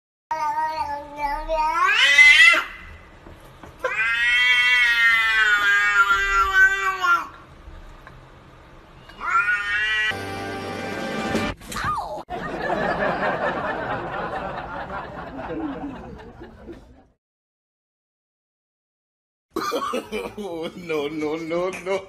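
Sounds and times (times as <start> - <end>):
cat meowing: 3.8 - 7.3, 9.0 - 10.2.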